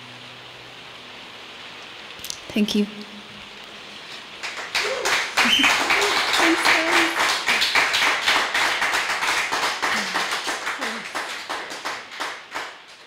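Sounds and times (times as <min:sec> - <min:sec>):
audience clapping: 0:04.4 - 0:13.0
voices calling out: 0:09.8 - 0:11.3.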